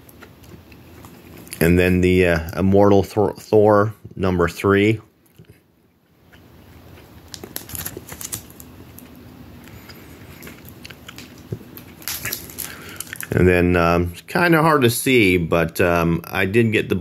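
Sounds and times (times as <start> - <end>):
plastic bags rustling and crinkling: 10.1 - 13.3.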